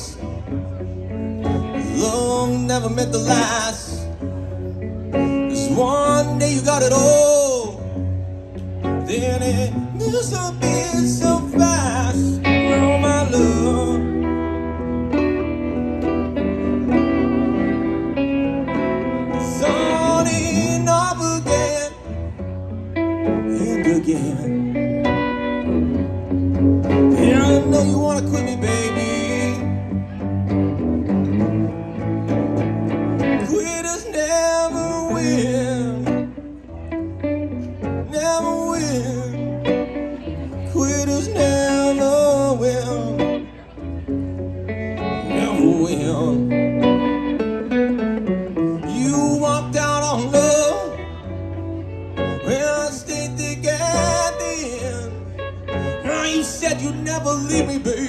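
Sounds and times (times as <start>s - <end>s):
electric and acoustic guitars playing: 0.0s - 58.0s
person singing: 8.8s - 15.3s, 16.9s - 22.2s, 26.8s - 30.0s, 33.3s - 36.4s, 38.0s - 43.6s, 45.0s - 47.3s, 48.5s - 51.5s, 52.1s - 58.0s.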